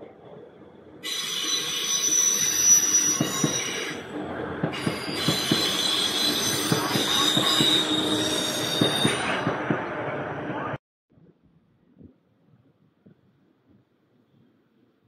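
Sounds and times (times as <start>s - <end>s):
train wheels squealing on rails: 1.0s - 10.7s.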